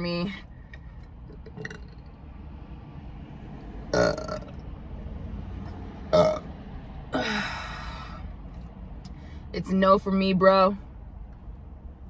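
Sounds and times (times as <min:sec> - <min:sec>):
woman burping: 0:04.0 - 0:04.5, 0:06.1 - 0:06.4, 0:07.2 - 0:07.6.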